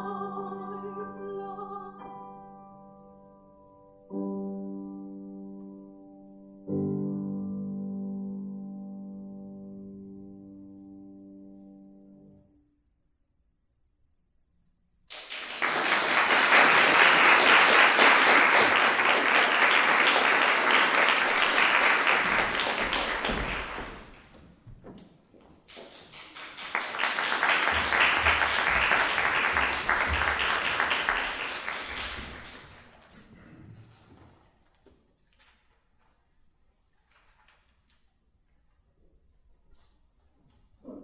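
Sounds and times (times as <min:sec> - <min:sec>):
audience applauding: 0:15.1 - 0:24.3, 0:25.7 - 0:33.2.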